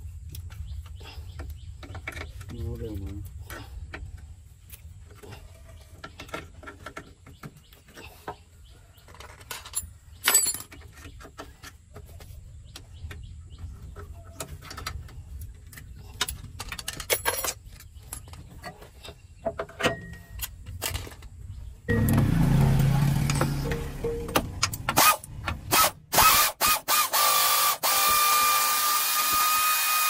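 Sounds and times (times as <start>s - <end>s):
hand tools clinking on metal: 9.3s - 11.0s, 16.6s - 18.4s
low steady rumble: 21.5s - 25.8s.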